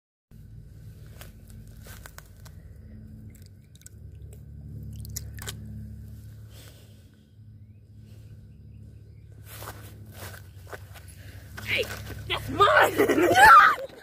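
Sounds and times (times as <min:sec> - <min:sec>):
low steady rumble: 0:00.3 - 0:14.0.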